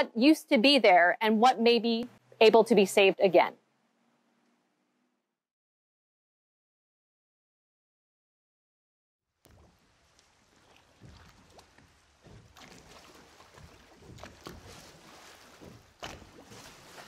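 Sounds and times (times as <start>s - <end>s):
water slapping against hull: 9.5s - 17.0s.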